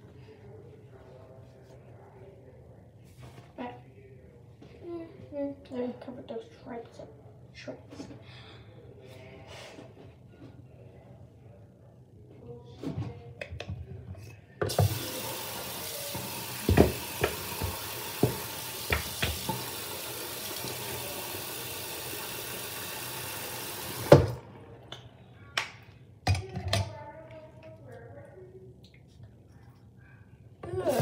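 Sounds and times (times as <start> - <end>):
tap water running: 14.6 - 24.4, 30.7 - 31.0
tap shut off knock: 16.6 - 19.6.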